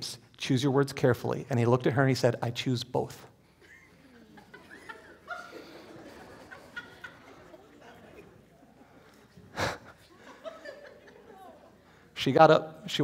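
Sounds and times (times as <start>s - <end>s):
congregation laughing: 3.5s - 12.1s.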